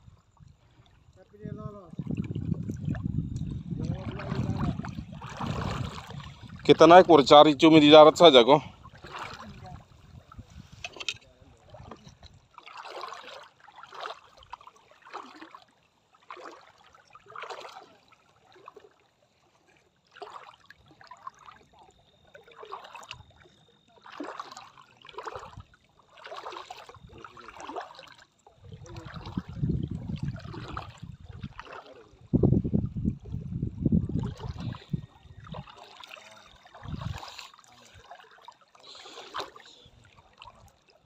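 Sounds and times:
wind rumble on microphone: 0:00.0 - 0:12.5, 0:28.6 - 0:35.8, 0:36.7 - 0:37.4
splashing footsteps in water: 0:02.0 - 0:10.2, 0:10.8 - 0:19.0, 0:20.0 - 0:32.3, 0:34.2 - 0:41.0.

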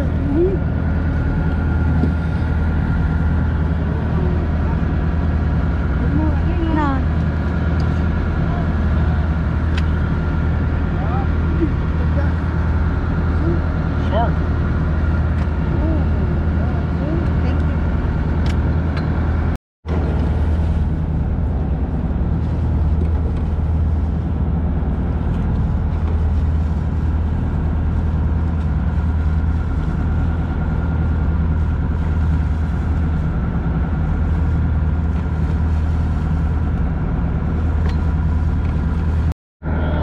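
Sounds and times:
boat engine humming: 0:00.0 - 0:40.0.

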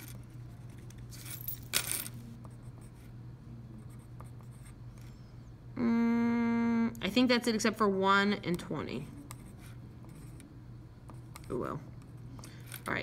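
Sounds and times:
low steady hum: 0:00.0 - 0:13.0
pen scratching on paper: 0:09.2 - 0:10.4.

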